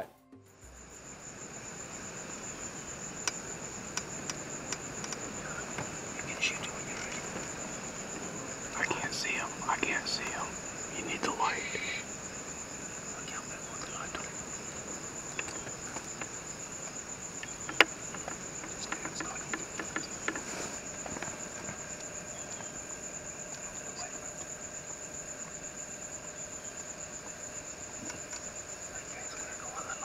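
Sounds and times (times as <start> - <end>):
night insects trilling: 0.4 - 30.0
sharp clicks: 17.4 - 20.5.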